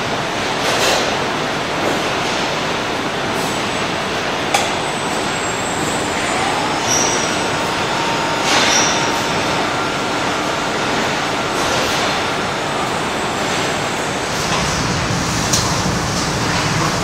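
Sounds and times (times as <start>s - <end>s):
conveyor running noise: 0.0s - 17.0s
high metal squeals: 5.2s - 11.6s.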